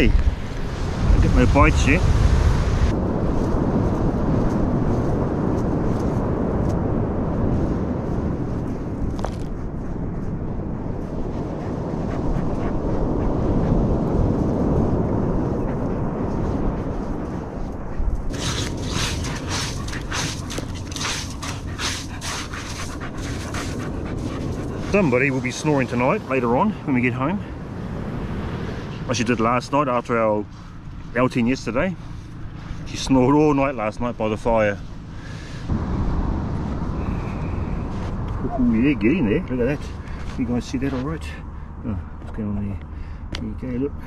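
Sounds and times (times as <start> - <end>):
wind buffeting the microphone: 0.0 - 44.0
dog paws scraping sand: 7.4 - 26.6, 37.9 - 41.3.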